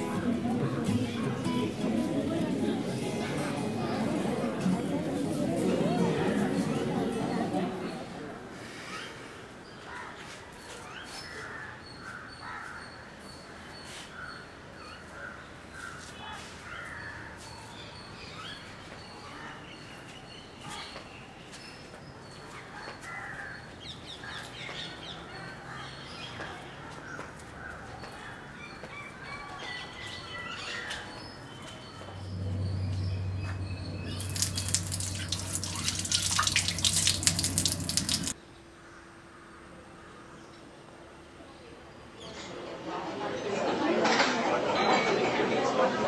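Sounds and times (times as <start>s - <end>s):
small birds chirping: 27.8s - 38.6s
steady low hum: 32.2s - 38.4s
tap water splashing on hand: 34.1s - 38.4s.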